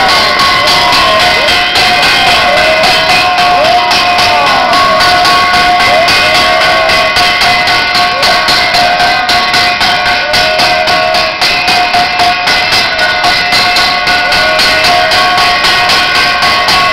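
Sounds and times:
sustained ringing tone: 0:00.0 - 0:16.9
temple bells and cymbals clanging: 0:00.0 - 0:16.9.

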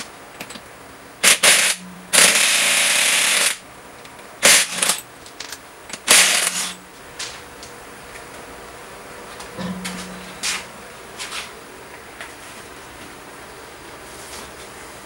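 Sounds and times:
impact wrench hammering: 0:01.2 - 0:03.6, 0:09.6 - 0:10.8.

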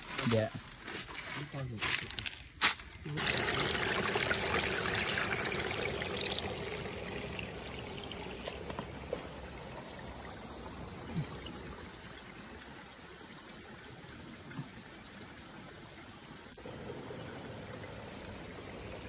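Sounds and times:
water splashing from pipe into pool: 0:02.2 - 0:12.0.

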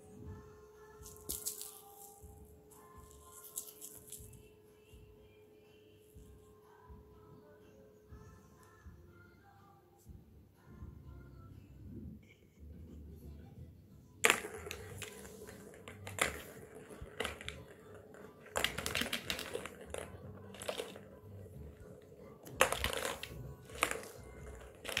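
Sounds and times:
plastic balls rattling on toy track: 0:14.2 - 0:25.0.

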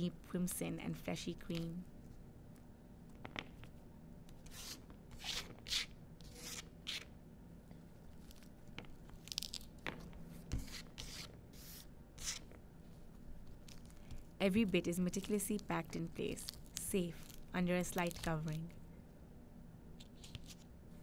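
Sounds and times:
fruit tearing and crackling: 0:08.2 - 0:09.8, 0:15.3 - 0:18.5.

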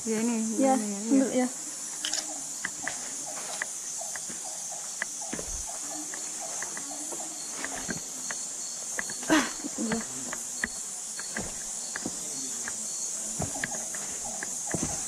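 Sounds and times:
forest insects droning: 0:00.0 - 0:15.0
footsteps on rock and leaves: 0:05.3 - 0:05.7, 0:11.2 - 0:12.8, 0:13.4 - 0:15.0.

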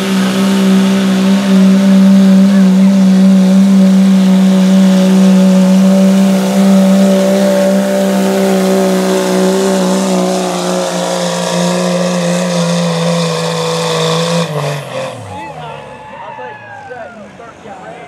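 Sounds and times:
diesel engine droning under load: 0:00.0 - 0:18.0.

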